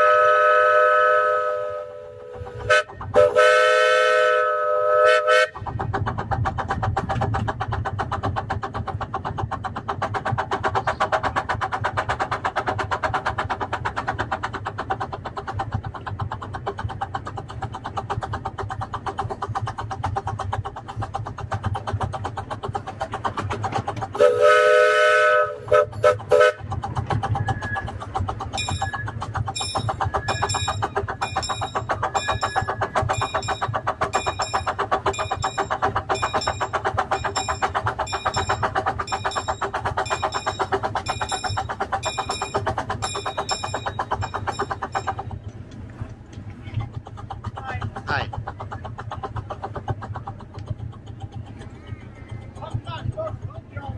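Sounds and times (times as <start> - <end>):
steam whistle blasts: 0.0 - 5.6, 24.2 - 26.6
steam locomotive chuffing: 0.0 - 53.9.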